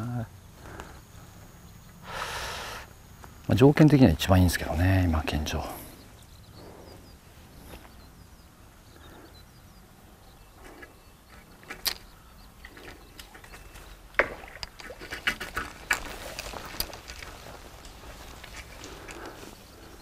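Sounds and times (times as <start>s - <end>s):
low steady background noise: 0.0s - 20.0s.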